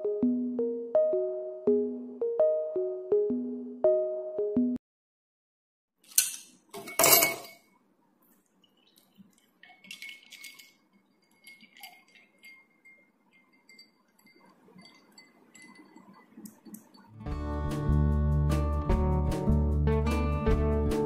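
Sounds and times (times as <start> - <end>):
milk pouring into a glass: 8.6 - 16.6
glass ringing: 11.2 - 17.1.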